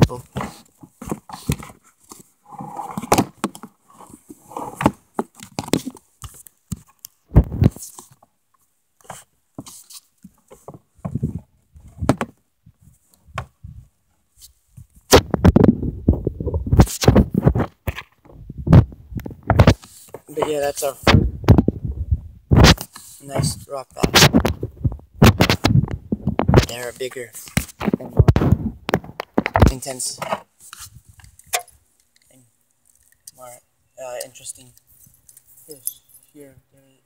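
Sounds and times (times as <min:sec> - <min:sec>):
knocks and thumps of handling gear: 0:00.0 - 0:02.3, 0:03.0 - 0:08.2, 0:09.0 - 0:12.4, 0:15.1 - 0:21.8, 0:27.4 - 0:30.5.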